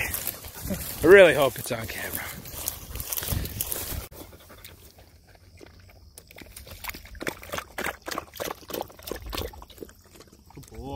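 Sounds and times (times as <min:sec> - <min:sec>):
dog panting: 0:04.0 - 0:05.5.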